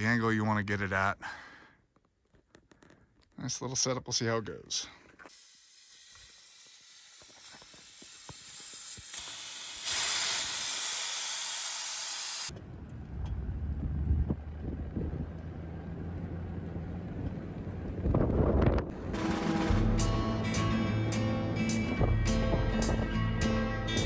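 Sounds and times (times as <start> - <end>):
truck engine running: 12.6 - 24.0.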